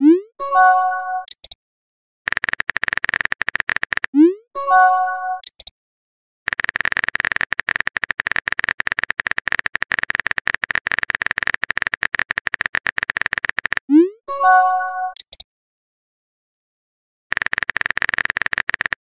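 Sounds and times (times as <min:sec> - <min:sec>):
message sent chime: 0:00.4 - 0:01.3, 0:04.6 - 0:05.4, 0:14.3 - 0:15.2
phone keyboard typing clicks: 0:01.2 - 0:01.6, 0:02.3 - 0:04.2, 0:05.4 - 0:05.7, 0:06.5 - 0:13.9, 0:15.1 - 0:15.4, 0:17.3 - 0:19.0.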